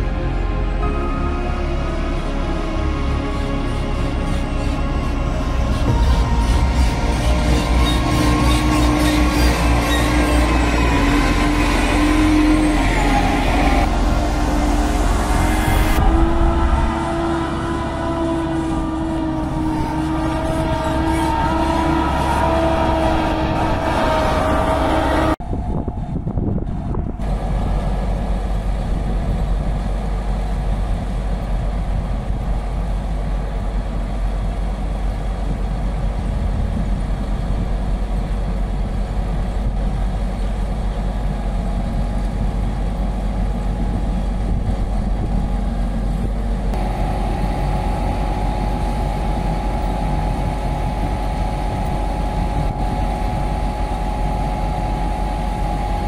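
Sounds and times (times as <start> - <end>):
steady high tone: 0.0 - 29.6, 46.7 - 56.0
heavy vehicle engine humming: 0.0 - 56.0.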